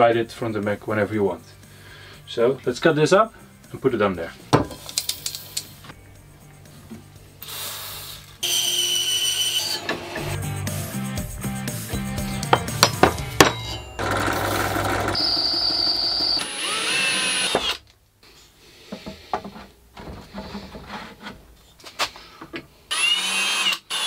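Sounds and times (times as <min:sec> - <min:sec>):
cordless drill whirring: 0:14.0 - 0:17.8, 0:22.9 - 0:24.0.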